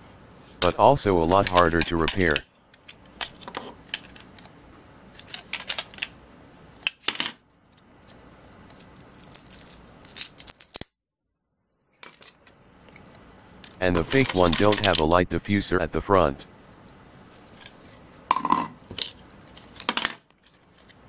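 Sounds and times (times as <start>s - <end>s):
plastic parts clicking and scraping: 1.4s - 4.5s, 5.1s - 6.1s.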